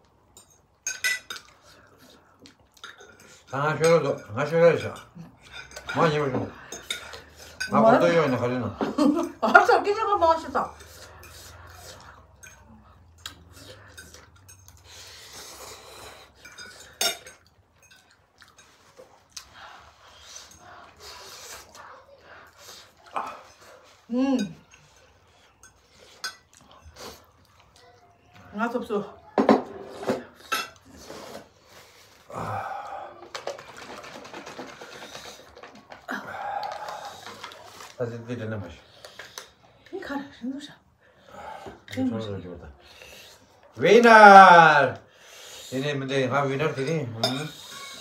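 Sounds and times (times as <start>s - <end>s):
forks scraping and clinking on plates: 0.3s - 2.1s, 2.8s - 9.7s, 10.4s - 19.4s, 23.4s - 27.3s, 29.4s - 32.2s, 45.7s - 48.0s.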